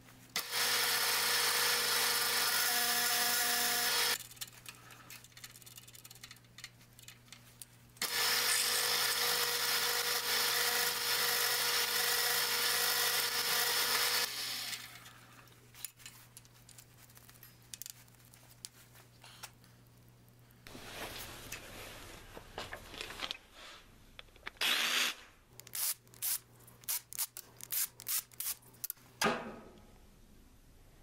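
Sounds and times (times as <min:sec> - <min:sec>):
drill boring into metal: 0:00.4 - 0:04.2, 0:08.0 - 0:14.8, 0:24.6 - 0:25.2
small clicks and knocks handling: 0:15.8 - 0:18.8.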